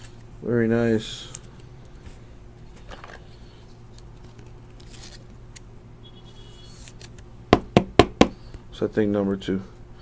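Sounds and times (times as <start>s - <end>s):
steady low hum: 0.0s - 10.0s
trading card rustling: 2.6s - 5.4s.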